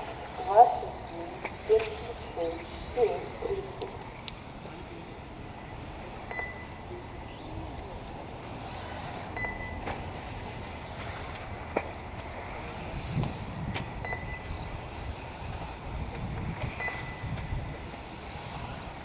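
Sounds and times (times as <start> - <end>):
open-air noise: 0.0 - 19.0
short high electronic beeps: 6.3 - 6.8, 16.8 - 17.3.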